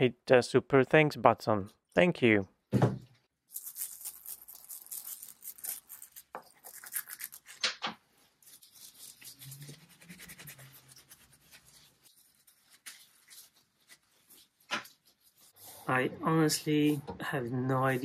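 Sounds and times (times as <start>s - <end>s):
cloth scrubbing wood: 8.4s - 15.8s.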